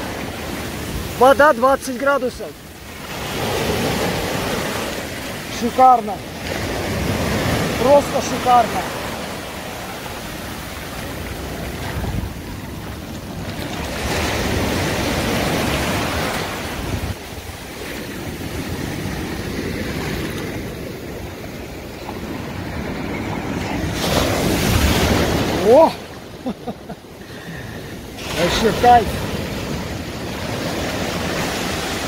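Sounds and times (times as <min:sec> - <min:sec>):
sea surf breaking on shore: 0:00.0 - 0:32.0.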